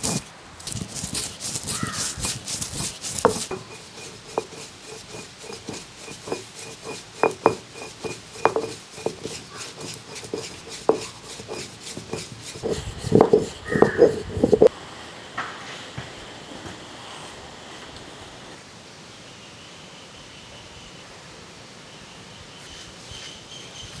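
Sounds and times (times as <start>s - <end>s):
stone roller grinding: 0.0s - 14.7s
stone-on-stone knocks: 1.1s - 14.7s.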